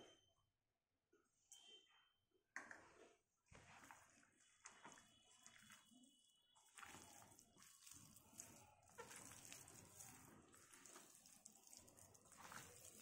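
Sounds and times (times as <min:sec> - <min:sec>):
wet squishing of kneaded chicken: 0:03.2 - 0:13.0.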